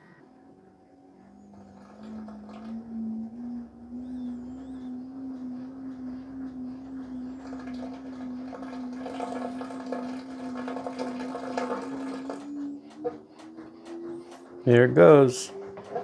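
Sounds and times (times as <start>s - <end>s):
washing machine hum: 0.0s - 16.0s.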